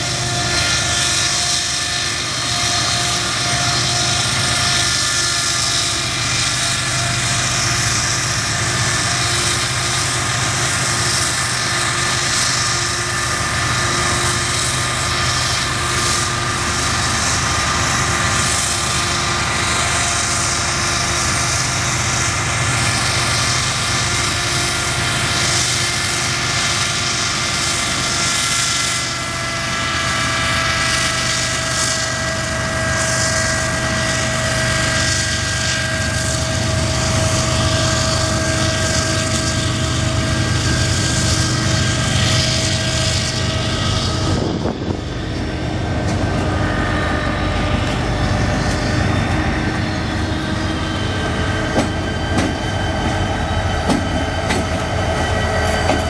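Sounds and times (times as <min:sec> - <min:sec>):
diesel locomotive engine drone: 0:00.0 - 0:56.0
high whining tones: 0:31.6 - 0:56.0.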